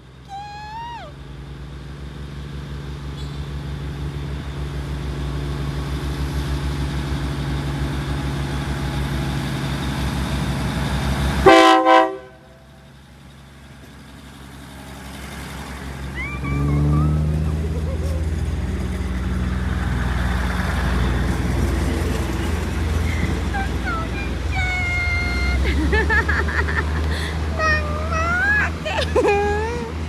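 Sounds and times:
diesel railcar engine and wheels: 0.0 - 30.0
train horn blasts: 11.4 - 12.7.

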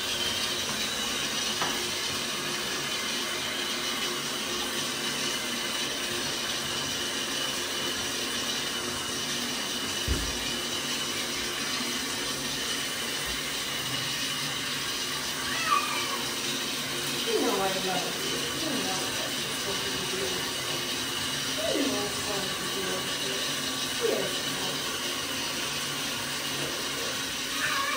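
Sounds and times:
shower water running: 0.0 - 27.9
short rising high-pitched cry: 15.4 - 16.3.

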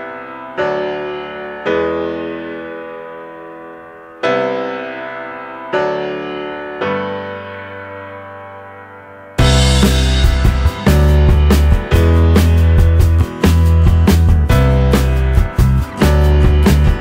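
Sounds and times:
slow keyboard chords: 0.0 - 17.0.

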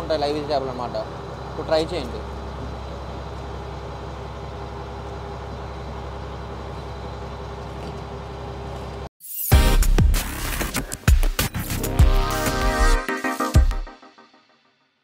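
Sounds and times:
diesel boat engine droning: 0.0 - 9.1.

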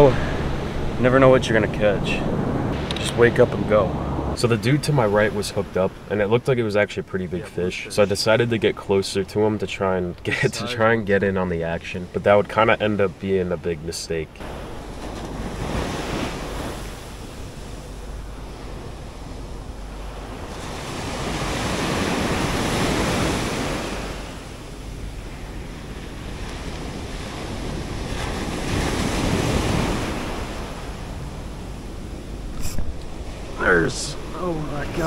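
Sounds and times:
wind buffeting microphone: 0.0 - 6.1
ocean surf breaking: 0.0 - 35.0.

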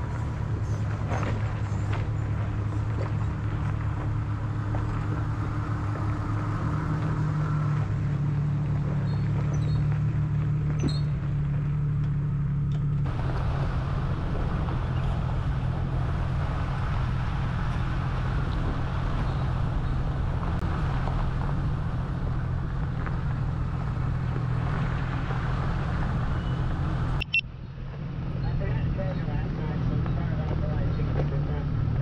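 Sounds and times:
car engine hum: 0.0 - 32.0
tyre and road noise: 0.0 - 32.0.

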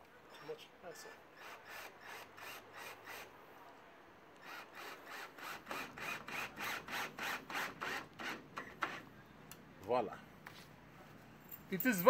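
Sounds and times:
cordless drill driving screw into wood: 1.4 - 3.3, 4.4 - 9.1.

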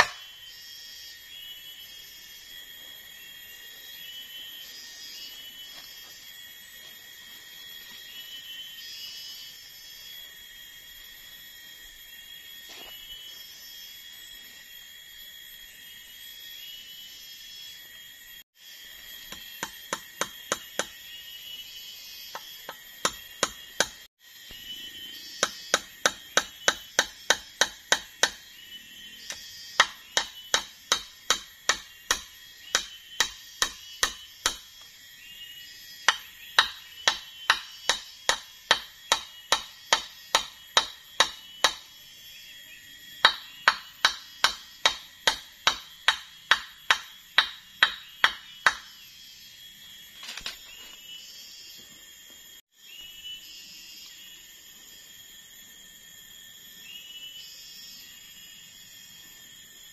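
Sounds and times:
hammering on wood: 0.0 - 0.2, 22.7 - 24.0, 25.4 - 28.4, 29.8 - 34.6, 36.1 - 41.9, 43.2 - 48.9.

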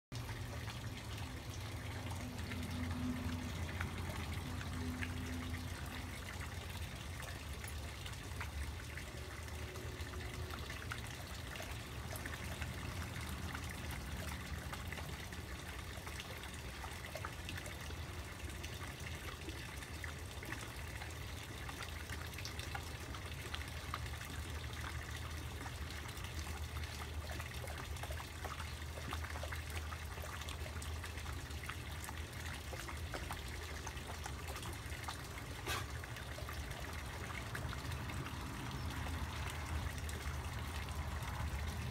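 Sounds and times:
pond water trickling: 0.1 - 41.9
low steady hum: 0.2 - 41.9.

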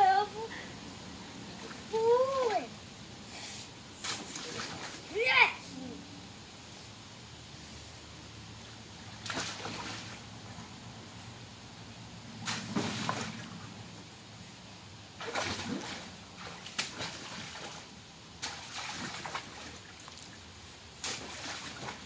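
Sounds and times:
water splashing in paddling pool: 4.0 - 5.6, 8.6 - 10.8, 12.3 - 14.0, 15.1 - 22.0.

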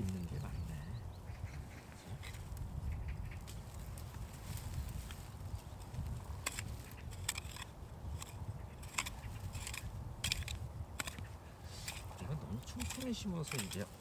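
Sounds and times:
hand tools scraping soil: 4.4 - 14.0.

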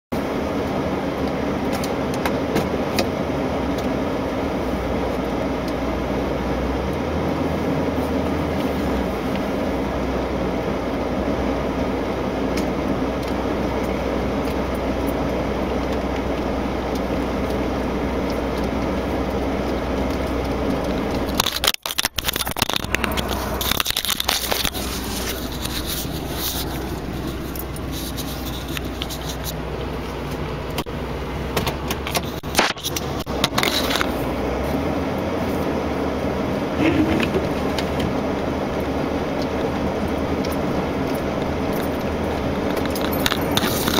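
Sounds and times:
truck engine running: 0.1 - 43.9
crackling and knocking: 12.5 - 34.3.

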